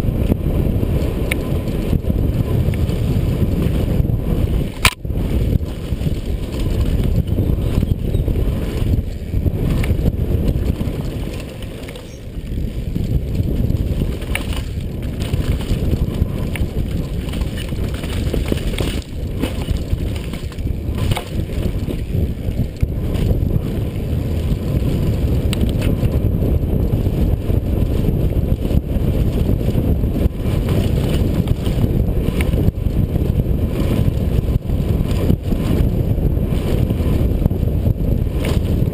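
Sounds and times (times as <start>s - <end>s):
bike tyre noise: 0.0s - 38.9s
wind buffeting microphone: 0.0s - 38.9s
bike chain clicks and knocks: 4.7s - 23.8s, 24.4s - 26.2s, 30.4s - 35.9s, 38.3s - 38.9s.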